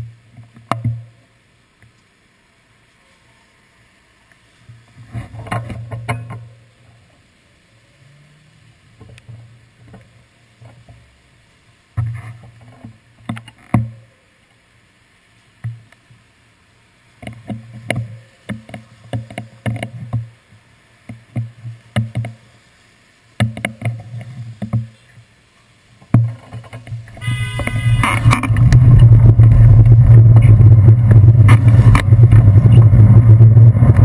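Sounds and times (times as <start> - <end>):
raindrops tapping on camera: 17.2 - 20.4, 21.0 - 22.5, 23.4 - 25.3, 26.0 - 34.0
cars passing on wet street: 27.1 - 34.0.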